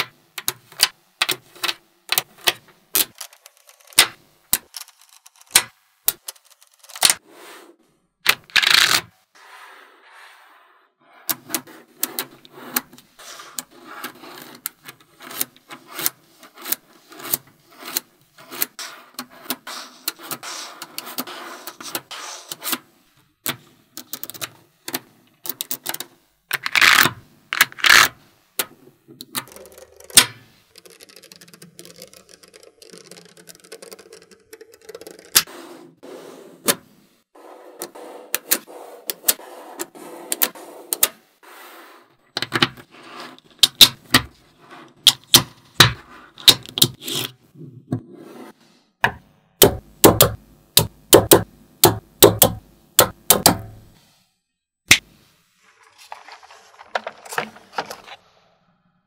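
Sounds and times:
magnetic balls clicking together: 0:29.2 - 0:35.5.

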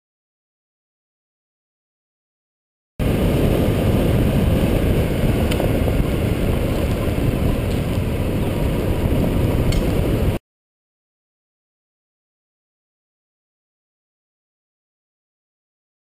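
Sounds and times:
dirt bike engine: 0:03.0 - 0:10.4
wind rumble on microphone: 0:03.0 - 0:10.4.

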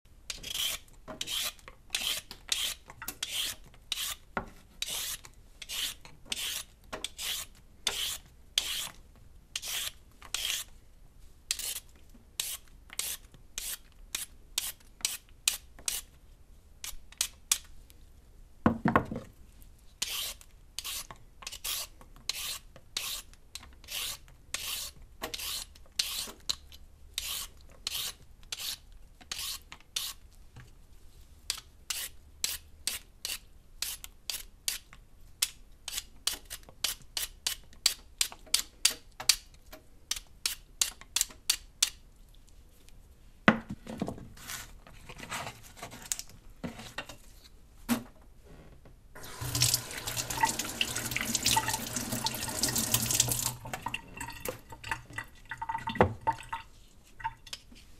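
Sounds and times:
peeler scraping a carrot: 0:00.3 - 0:09.0, 0:09.6 - 0:10.7, 0:11.5 - 0:16.1, 0:20.0 - 0:30.2, 0:31.5 - 0:39.4.

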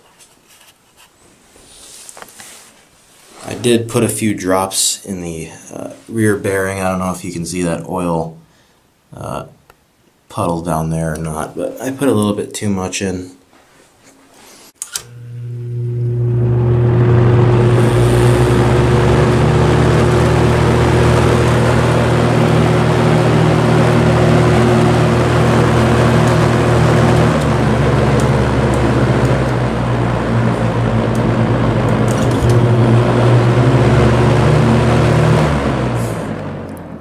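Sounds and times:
fan motor hum: 0:14.9 - 0:37.0
fan air rushing: 0:15.5 - 0:37.0.

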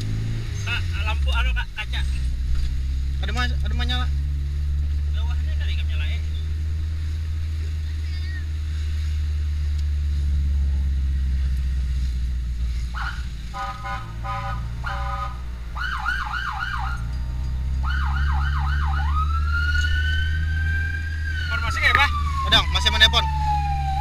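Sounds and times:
vehicle engine rumble: 0:00.0 - 0:24.0
electronic siren: 0:13.0 - 0:24.0.

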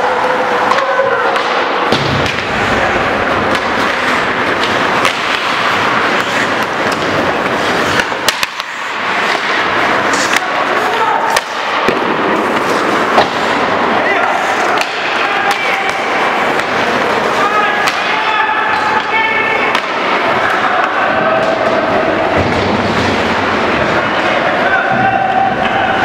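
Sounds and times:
skate blades scraping ice: 0:00.0 - 0:20.6
stick and puck clacks: 0:00.2 - 0:26.0.

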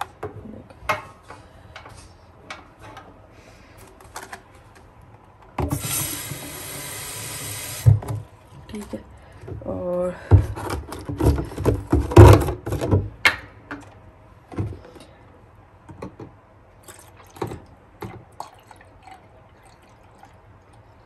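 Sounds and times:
liquid pouring into tank: 0:16.8 - 0:20.9.

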